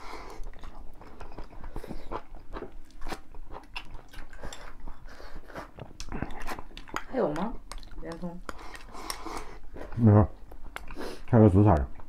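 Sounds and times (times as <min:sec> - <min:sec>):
crunchy chewing: 0:00.1 - 0:12.0
chopsticks clicking on bowls: 0:06.0 - 0:09.2.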